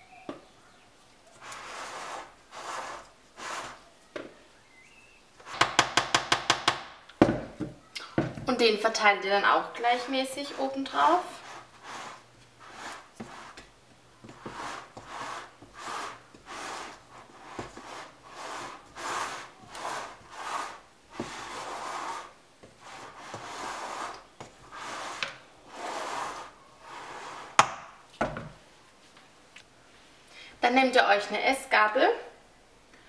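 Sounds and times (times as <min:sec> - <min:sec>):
spatula scraping batter: 0:01.3 - 0:03.9, 0:08.9 - 0:27.6.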